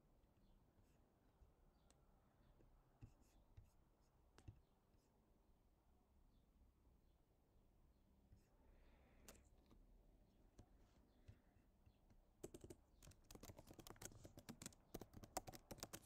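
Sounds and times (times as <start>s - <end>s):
faint keyboard typing: 10.5s - 16.0s.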